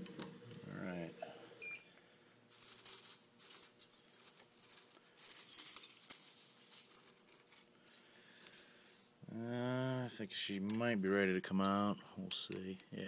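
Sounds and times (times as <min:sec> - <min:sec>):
metal chips rattling: 0:02.5 - 0:09.1.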